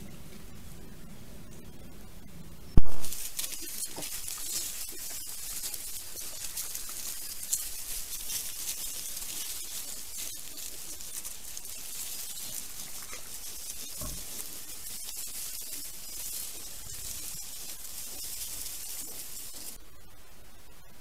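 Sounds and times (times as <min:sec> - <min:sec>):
steady high hiss: 0:00.0 - 0:21.0
sharp loud click: 0:02.8 - 0:03.1
rustling and pattering in grass: 0:03.0 - 0:19.8.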